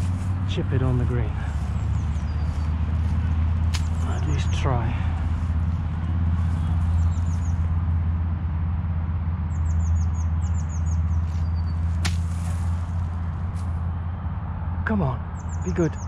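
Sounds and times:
low rumble: 0:00.0 - 0:09.9
birds chirping: 0:00.0 - 0:16.0
golf club striking ball: 0:03.6 - 0:04.0, 0:11.9 - 0:12.8.

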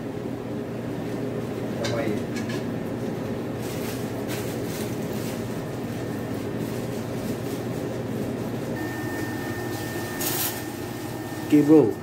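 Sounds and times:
ship machinery drone: 0:08.8 - 0:12.0
thin high tone: 0:08.8 - 0:12.0.

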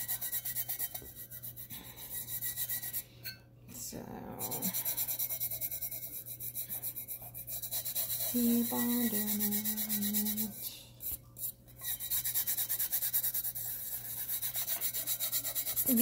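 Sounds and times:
fingertips rubbing glitter: 0:04.4 - 0:16.0.

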